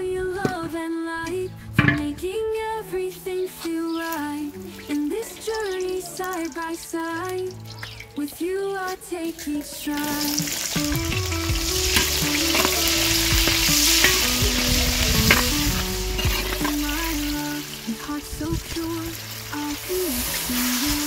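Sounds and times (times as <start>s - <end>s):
onions sizzling in hot oil: 9.9s - 21.0s
metal spoon scraping a pan: 11.9s - 14.4s.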